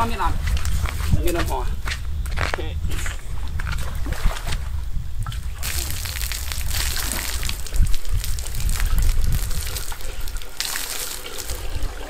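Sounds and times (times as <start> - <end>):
water gushing into a drum: 5.2 - 12.0.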